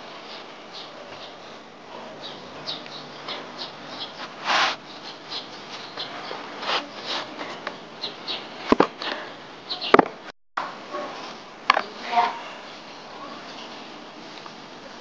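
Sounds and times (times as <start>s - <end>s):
hands rolling dough: 4.1s - 7.8s.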